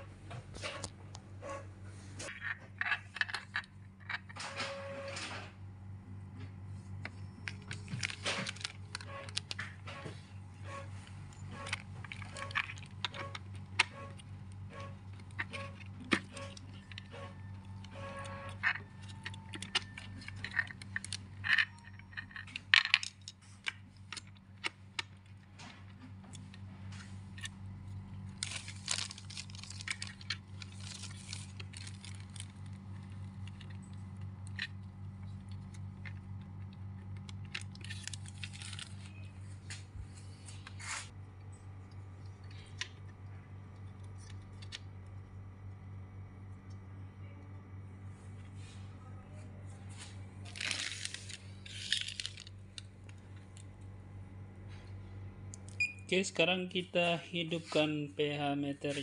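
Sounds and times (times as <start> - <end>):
crinkling plastic: 7.4 - 9.9, 11.1 - 40.9, 49.9 - 53.7.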